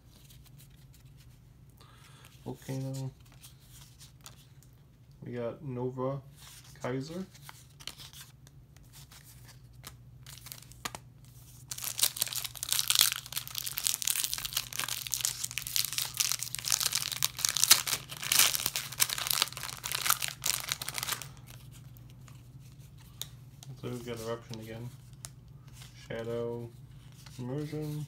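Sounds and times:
foil wrapper tearing and crinkling: 0:11.7 - 0:21.6.

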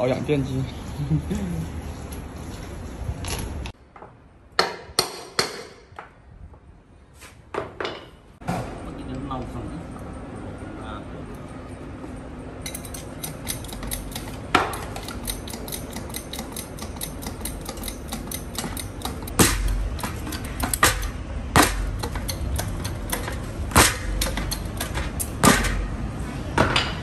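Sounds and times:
hydraulic jack pumping clicks: 0:12.9 - 0:25.7.

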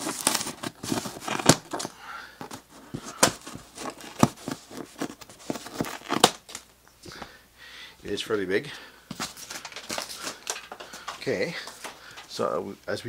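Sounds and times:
cardboard and plastic rustling: 0:00.0 - 0:06.7, 0:09.1 - 0:12.4.

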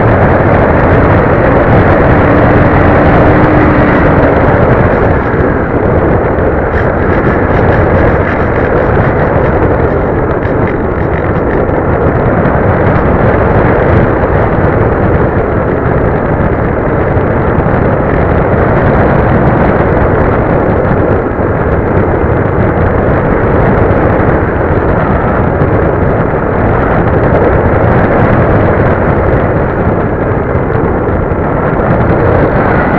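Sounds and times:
plane motor and propeller: 0:00.0 - 0:32.9
wind buffeting microphone: 0:00.0 - 0:32.9.

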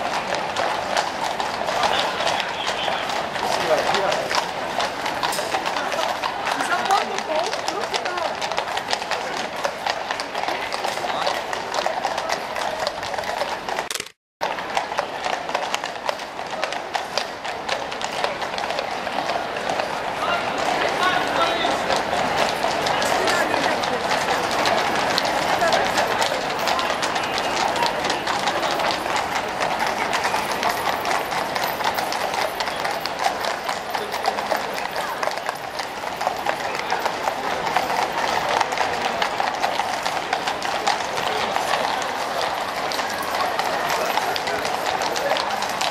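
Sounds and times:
hooves clip-clopping on pavement: 0:00.0 - 0:45.9.

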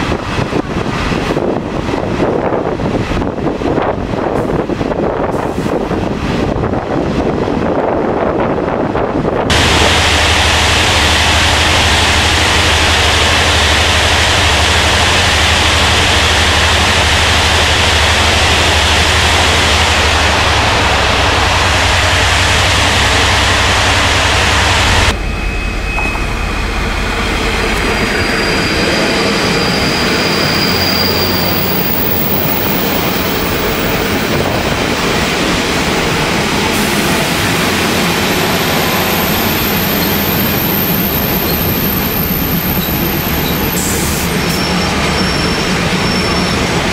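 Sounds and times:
train rumbling: 0:00.0 - 0:46.9
high whine: 0:09.5 - 0:45.5.

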